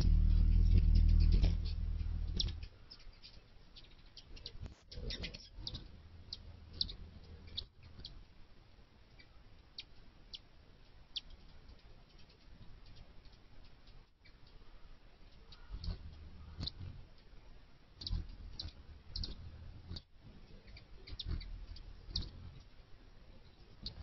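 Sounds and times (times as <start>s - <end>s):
hummingbird chip notes: 0.0s - 3.1s, 4.4s - 8.2s, 15.5s - 17.0s, 18.0s - 22.7s, 23.5s - 24.0s.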